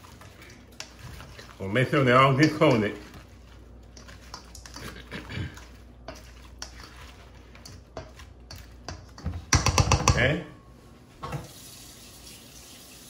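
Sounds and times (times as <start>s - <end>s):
wet squelching of sauce: 0.0s - 9.2s
spoon scraping metal bowl: 0.0s - 9.4s.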